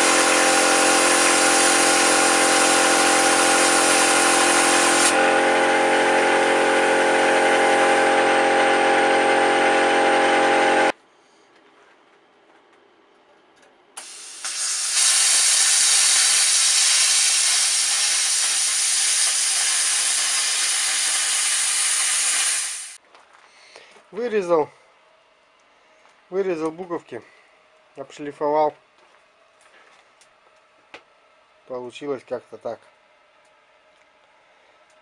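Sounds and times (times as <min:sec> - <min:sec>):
plasma cutter hissing: 0:00.0 - 0:07.6, 0:14.0 - 0:23.0
angle grinder grinding steel: 0:00.0 - 0:10.9.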